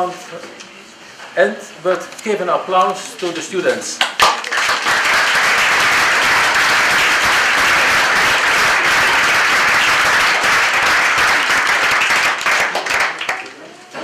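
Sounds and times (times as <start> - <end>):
crowd applauding: 4.1 - 13.7.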